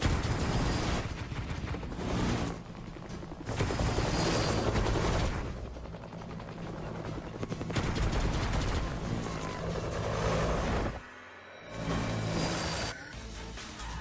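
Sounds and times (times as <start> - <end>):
helicopter rotors chopping: 0.0 - 11.0.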